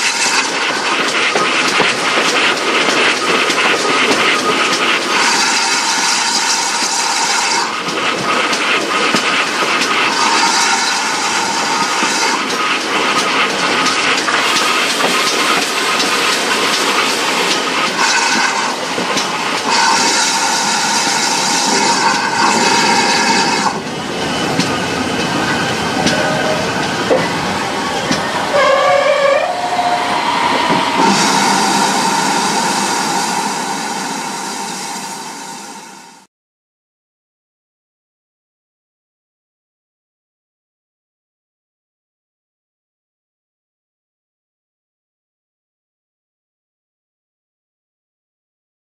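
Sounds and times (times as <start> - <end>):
loud steam hiss: 0.0 - 36.3
steam locomotive running: 0.0 - 36.3.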